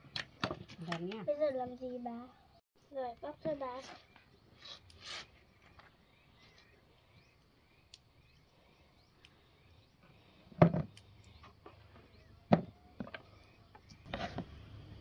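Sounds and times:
rustling scrape: 3.7 - 5.4.

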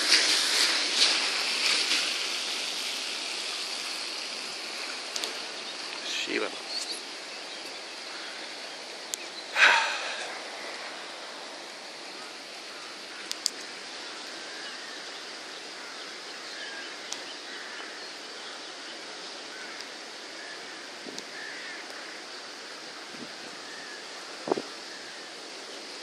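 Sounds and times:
river rushing: 0.0 - 26.0
faint bird chirps: 5.3 - 11.0.

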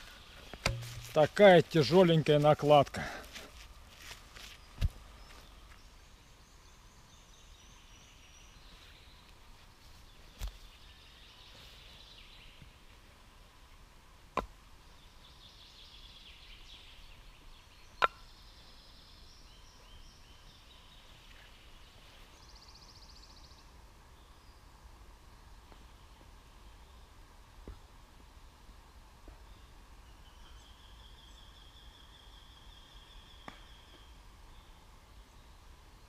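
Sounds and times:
songbirds chirping and trilling: 0.0 - 13.2, 14.7 - 28.0, 28.8 - 36.0
sharp knocks: 0.6 - 1.2.

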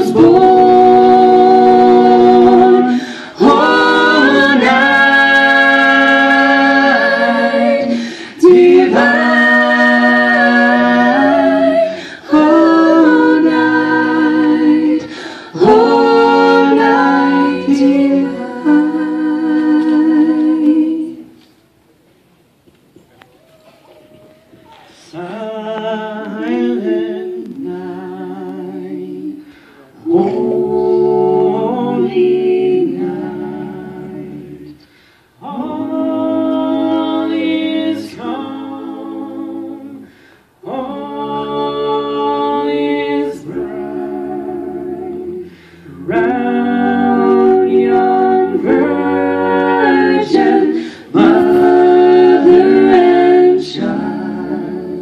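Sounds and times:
a cappella group singing harmony: 0.0 - 21.5, 24.9 - 55.0.

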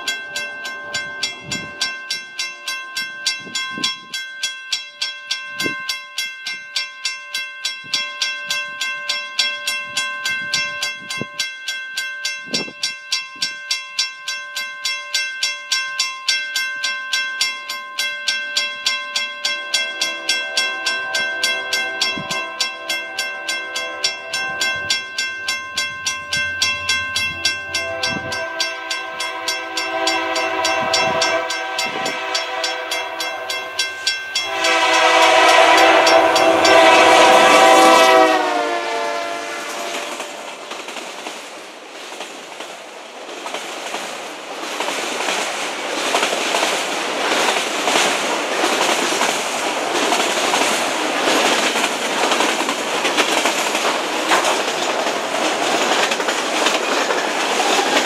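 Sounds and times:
crossing bell dinging: 0.0 - 40.7, 47.6 - 58.0
locomotive chime horn: 18.5 - 40.5
freight train wheel clatter: 39.7 - 58.0.

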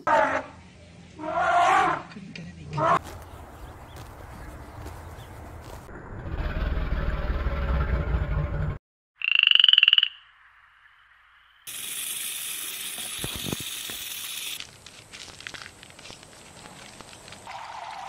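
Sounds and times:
low rumbling noise: 3.3 - 8.8
frog croaking: 9.2 - 10.4.

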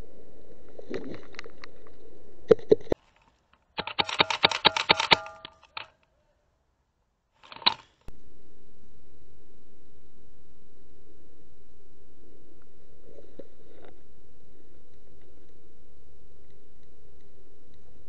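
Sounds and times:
airsoft guns firing: 3.8 - 5.8.

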